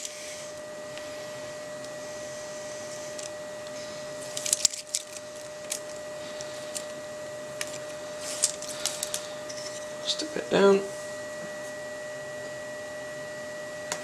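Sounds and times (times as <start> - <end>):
faint steady hum: 0.0 - 14.0
tape backing crinkling: 3.1 - 9.3.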